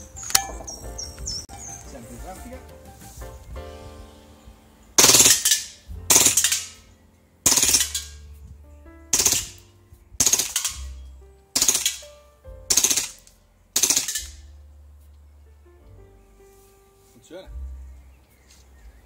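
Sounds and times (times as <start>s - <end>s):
airsoft pistol shots: 5.0s - 8.2s, 9.1s - 11.0s, 11.6s - 12.1s, 12.7s - 14.5s.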